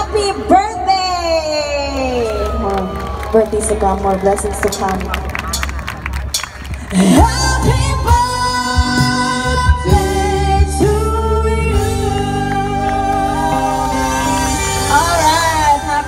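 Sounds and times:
person singing: 0:06.9 - 0:16.0.

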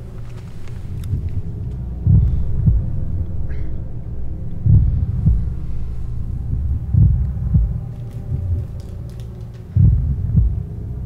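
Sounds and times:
low steady drone: 0:00.0 - 0:11.0
heartbeat-like thumps: 0:01.1 - 0:03.9, 0:04.5 - 0:08.9, 0:09.7 - 0:10.8.

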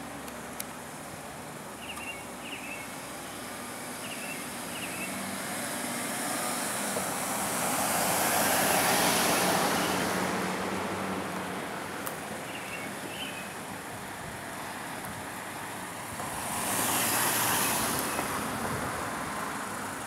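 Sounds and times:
bird chirping: 0:01.8 - 0:03.0, 0:04.0 - 0:05.2, 0:12.4 - 0:13.6
car passing: 0:03.0 - 0:13.6, 0:15.8 - 0:20.0.

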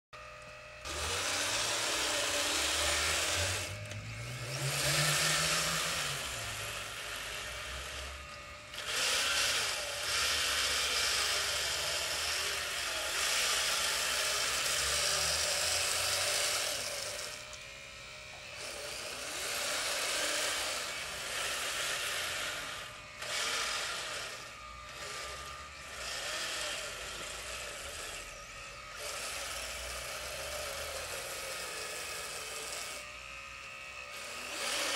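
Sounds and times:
electric motors whining: 0:00.2 - 0:34.9.

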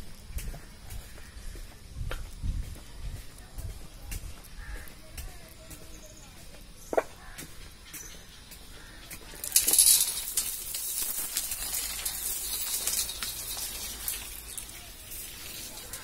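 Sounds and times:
metal chain curtain jingling: 0:09.4 - 0:16.0.

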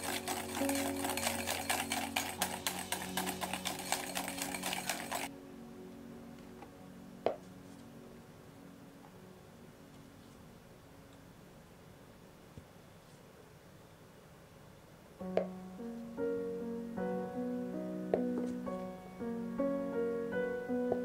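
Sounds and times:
whisk clicking against glass bowl: 0:00.0 - 0:05.3.

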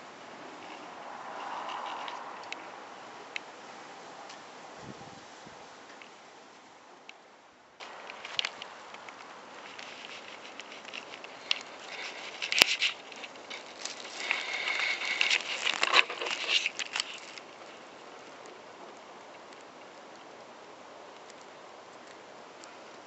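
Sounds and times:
woven mat rustling and crackling: 0:07.8 - 0:18.6.

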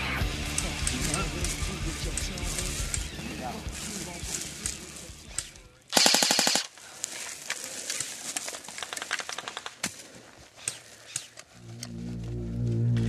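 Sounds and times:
airsoft rifle full-auto burst: 0:05.9 - 0:06.8.

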